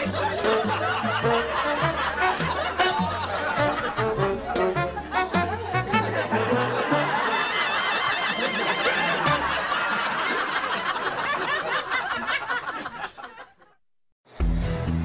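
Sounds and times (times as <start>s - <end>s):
comedy soundtrack music: 0.0s - 10.8s
laughter of many voices: 0.0s - 13.8s.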